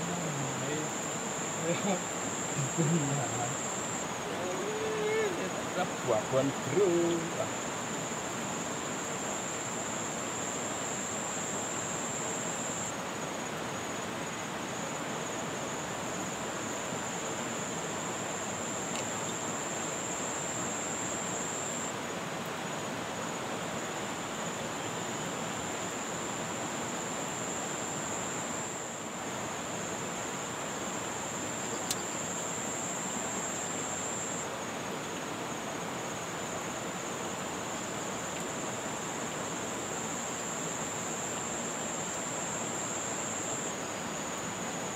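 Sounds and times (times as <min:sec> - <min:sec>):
insect trilling: 0:00.0 - 0:12.9, 0:17.0 - 0:21.9, 0:30.8 - 0:34.6
light tick: 0:31.8 - 0:32.1.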